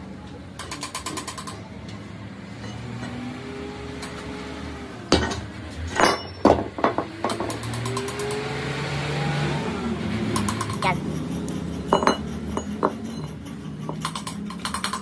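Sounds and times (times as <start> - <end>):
low workshop background: 0.0 - 15.0
metal engine parts clanking: 5.1 - 8.4, 10.2 - 15.0.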